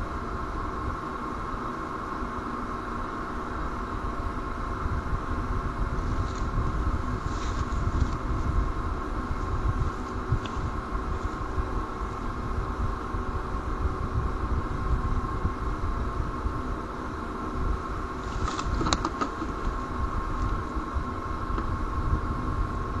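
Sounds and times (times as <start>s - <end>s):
constant hum: 0.0s - 23.0s
bird rustling on nest: 6.0s - 8.6s, 9.3s - 11.7s, 18.2s - 20.9s.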